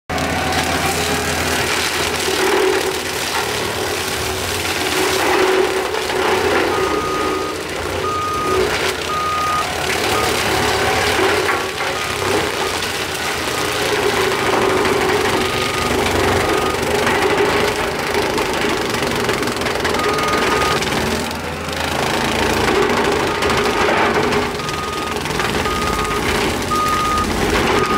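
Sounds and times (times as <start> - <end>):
skid steer engine running: 0.1 - 27.9
backup alarm beeping: 6.6 - 12.8, 13.5 - 16.8, 19.9 - 20.8, 24.6 - 27.9.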